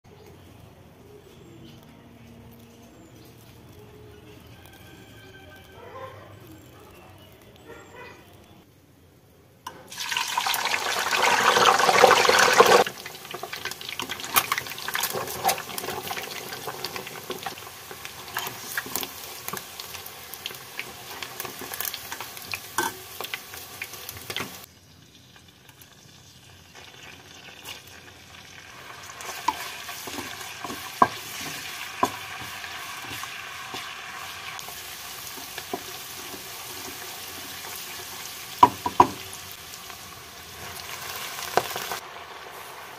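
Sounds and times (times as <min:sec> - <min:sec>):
onions frying with pops: 0:00.1 - 0:08.7, 0:09.6 - 0:42.9
eggs sizzling in hot oil: 0:09.7 - 0:42.9.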